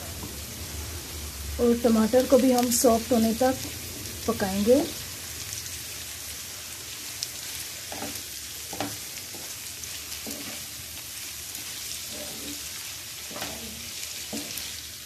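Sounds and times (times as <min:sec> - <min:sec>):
vegetables sizzling in hot oil: 0:00.0 - 0:15.0
wooden spatula scraping pan: 0:07.9 - 0:10.8, 0:11.6 - 0:14.8.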